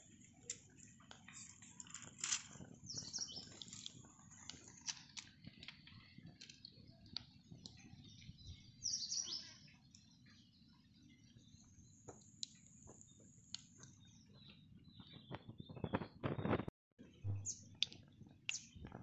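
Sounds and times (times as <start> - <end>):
twig fire crackling: 0.0 - 7.8
birds chirping: 0.0 - 16.6, 17.2 - 18.9.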